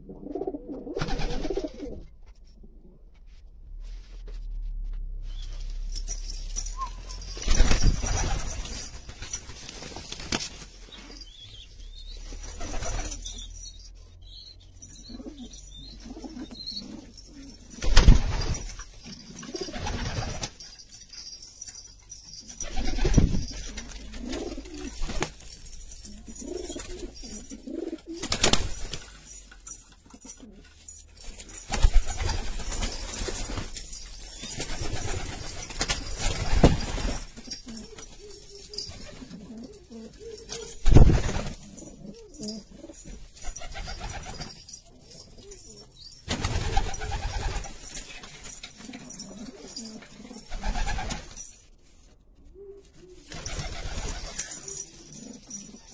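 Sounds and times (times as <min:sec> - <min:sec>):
pigeons cooing: 0:00.0 - 0:02.1, 0:15.0 - 0:17.8, 0:22.6 - 0:25.2, 0:25.8 - 0:28.6, 0:37.4 - 0:47.4, 0:52.5 - 0:55.9.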